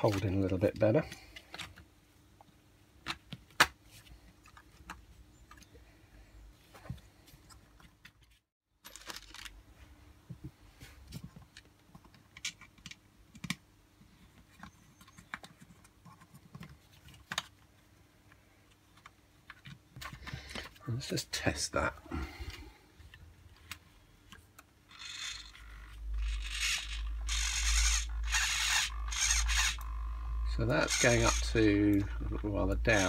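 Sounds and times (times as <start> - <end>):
plastic parts clicking and knocking: 0.0 - 1.9, 11.1 - 13.6.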